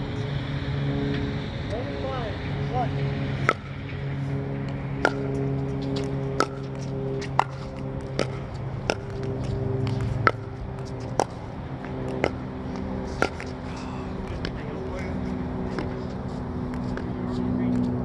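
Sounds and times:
low drone: 0.0s - 18.0s
ball bouncing on court: 3.4s - 3.8s, 5.0s - 12.4s, 13.2s - 13.6s.

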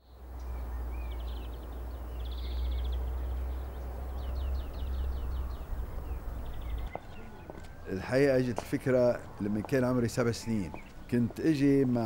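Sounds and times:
small birds chirping and trilling: 0.0s - 12.0s
steady low rumble: 2.2s - 6.9s.

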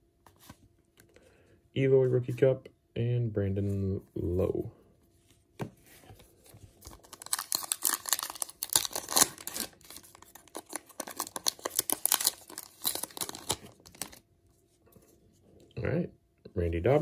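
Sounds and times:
wrapper tearing and crinkling: 6.8s - 14.2s.

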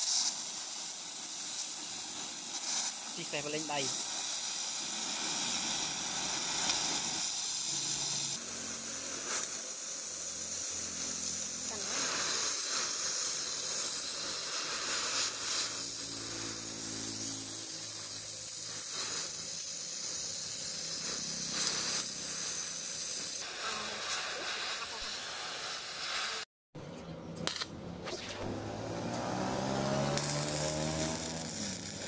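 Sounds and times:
cutting torch hissing: 0.0s - 26.5s, 28.2s - 32.0s.

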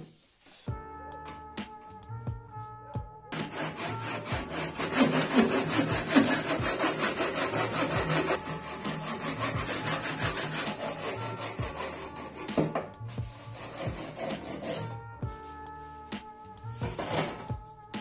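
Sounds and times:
hand saw cutting wood: 3.3s - 15.0s.

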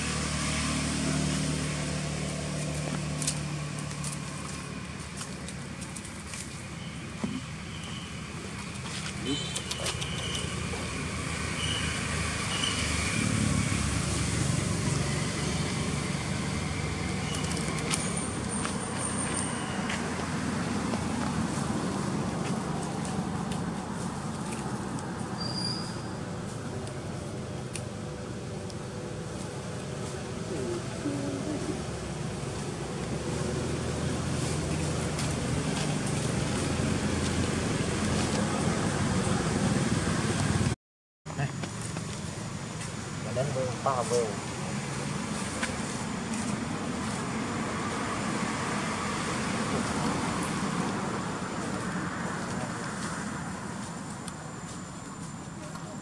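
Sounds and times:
road vehicle passing: 0.0s - 40.8s, 41.5s - 56.0s
engine humming: 26.0s - 47.4s.

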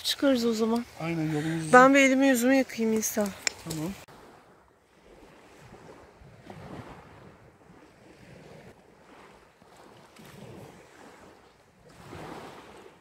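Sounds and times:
waves lapping on pebbles: 0.2s - 13.0s
wind on microphone: 3.4s - 13.0s.

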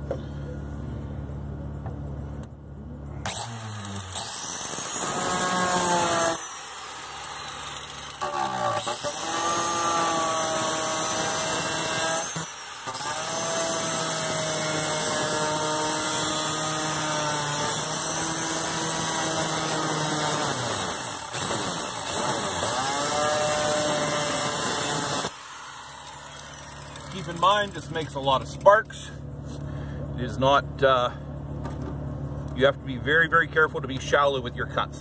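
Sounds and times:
angle grinder cutting sheet steel: 3.2s - 28.0s.

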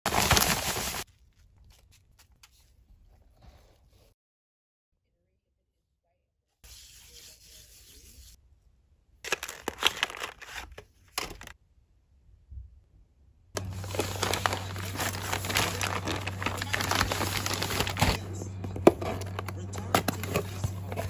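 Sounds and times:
paper bag crinkling and tearing: 0.1s - 2.0s, 9.3s - 11.6s, 13.6s - 18.3s.

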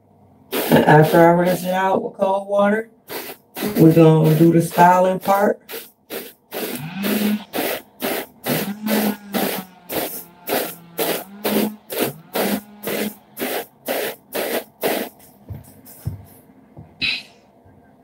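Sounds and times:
hair brush swishing: 0.6s - 1.2s, 3.1s - 16.4s.

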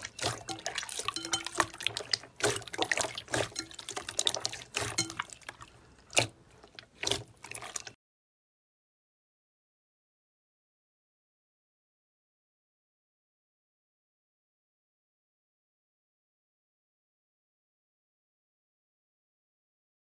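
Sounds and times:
slime squelching and popping: 0.0s - 8.0s.

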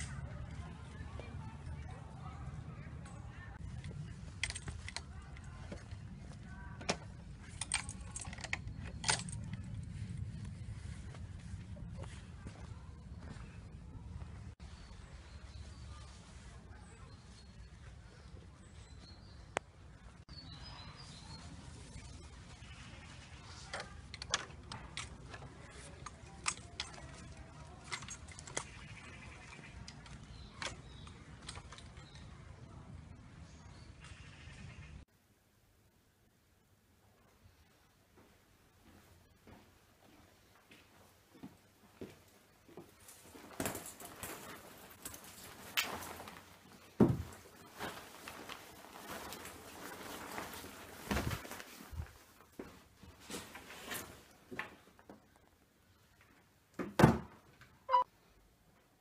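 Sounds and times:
coat rustling: 42.8s - 54.4s
things being moved: 42.8s - 55.1s.

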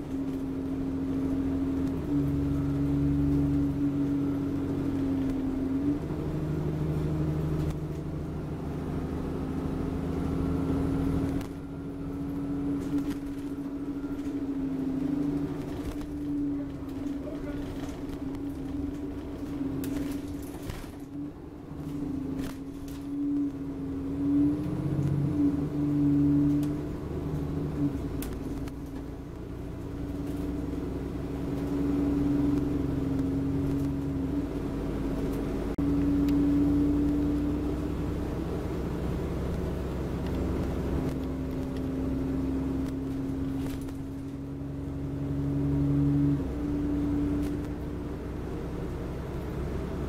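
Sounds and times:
bus engine rumble and whine: 0.0s - 50.0s.

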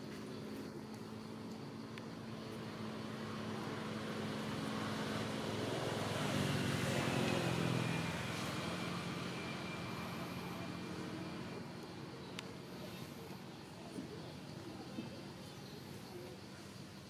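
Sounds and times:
vehicle engine passing by: 1.8s - 13.4s.

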